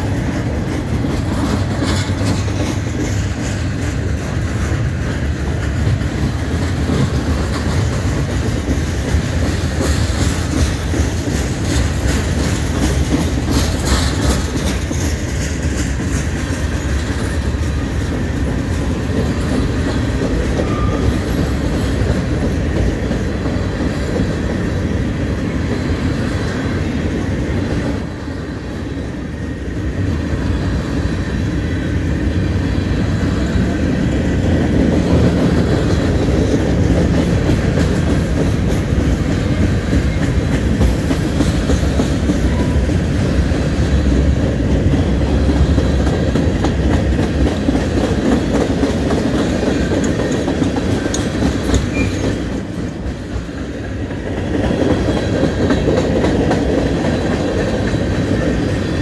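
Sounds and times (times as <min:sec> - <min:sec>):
freight train wheels on rails: 0:00.0 - 0:59.0.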